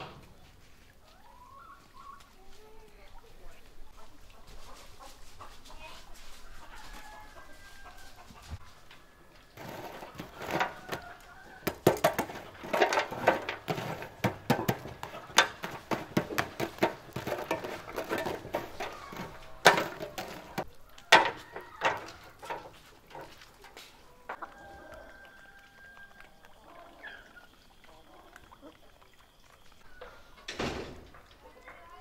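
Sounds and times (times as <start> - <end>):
chicken clucking: 0.1 - 30.5, 31.2 - 32.0
metal tongs raking charcoal: 9.4 - 24.4.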